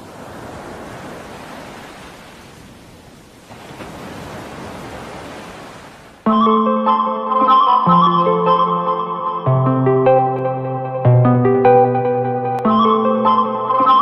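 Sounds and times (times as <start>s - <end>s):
rushing surf-like noise: 0.0s - 6.2s
music with plucked notes: 6.3s - 14.0s.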